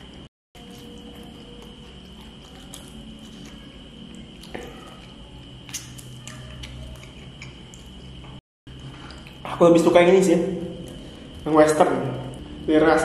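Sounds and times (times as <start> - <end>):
background hum: 0.0 - 13.0
wet chewing: 0.6 - 9.5.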